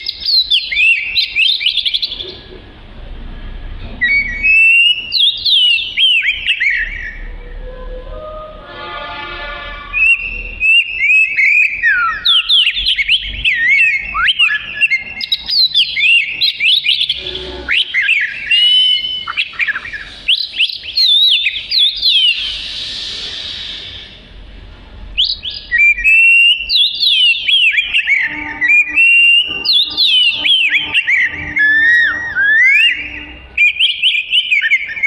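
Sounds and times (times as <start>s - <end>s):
bird singing whistled song: 0.0s - 2.4s, 4.0s - 8.5s, 9.9s - 24.2s, 25.2s - 35.0s
harsh hissing: 21.6s - 25.2s.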